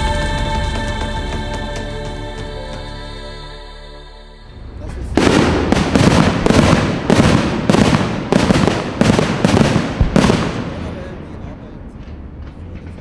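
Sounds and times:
intro music: 0:00.0 - 0:07.1
fireworks banging: 0:04.6 - 0:13.0.

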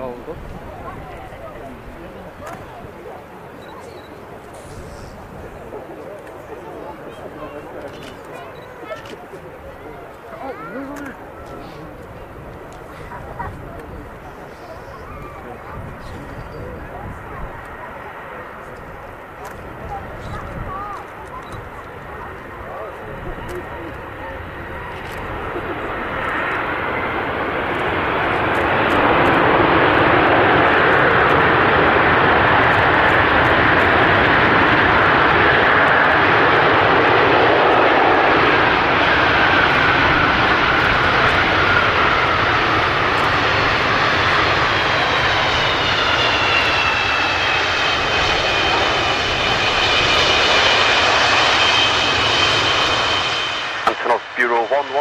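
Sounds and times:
jet engines running: 0:00.0 - 0:55.0
high multi-tone whine: 0:50.8 - 0:55.0.

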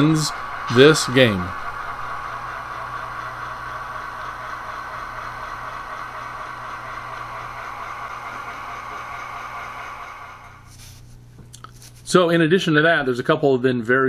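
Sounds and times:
model train whirring on track: 0:00.0 - 0:10.8.

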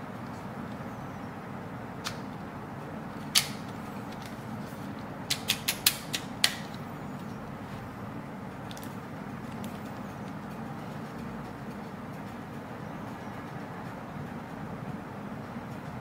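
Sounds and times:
loud plastic snap: 0:03.2 - 0:03.7.

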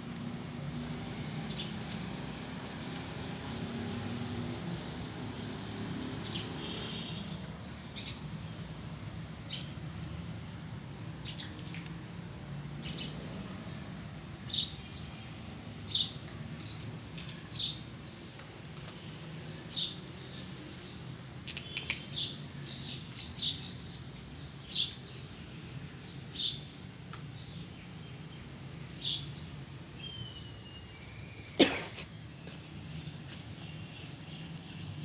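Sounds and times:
small bird chirping: 0:11.2 - 0:12.0, 0:19.7 - 0:25.3, 0:29.0 - 0:31.6.

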